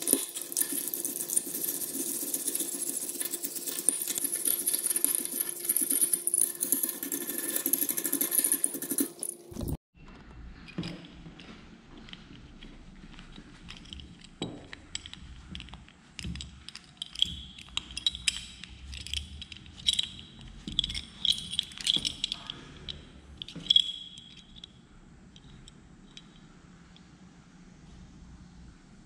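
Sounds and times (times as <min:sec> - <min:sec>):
light metallic clinks: 0:13.7 - 0:26.5.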